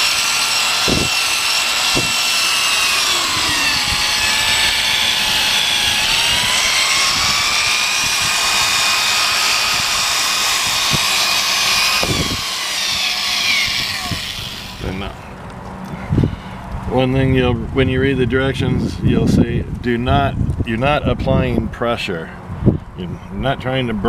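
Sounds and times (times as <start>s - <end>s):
electric drill motor whine: 0.0s - 15.2s.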